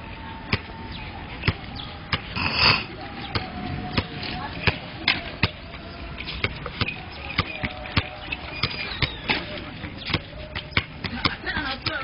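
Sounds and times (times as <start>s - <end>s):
basketballs bouncing on hard court: 6.4s - 12.0s.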